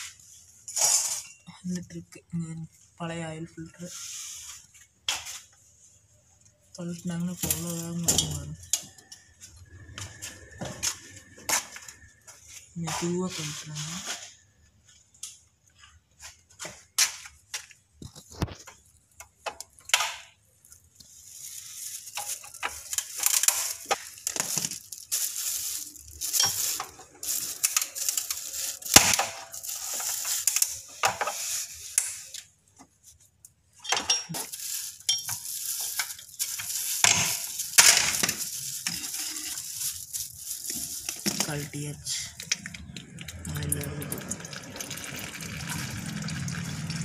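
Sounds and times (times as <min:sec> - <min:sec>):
plastic bag crinkling: 0:20.4 - 0:33.4, 0:34.2 - 0:47.0.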